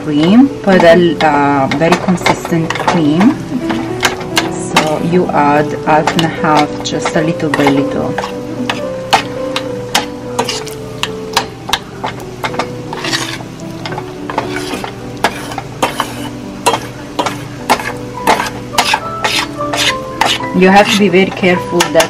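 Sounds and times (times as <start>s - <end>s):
fork tines clicking on pan: 6.0s - 22.0s
fork scraping a saucepan: 7.5s - 9.3s, 10.4s - 10.8s, 12.1s - 20.5s.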